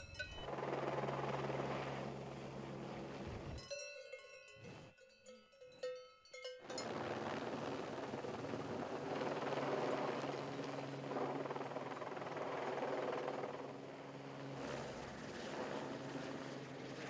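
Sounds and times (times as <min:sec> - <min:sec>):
cowbells clinking: 0:00.0 - 0:00.5, 0:03.6 - 0:06.9
helicopter hovering: 0:00.0 - 0:03.7, 0:06.7 - 0:17.0.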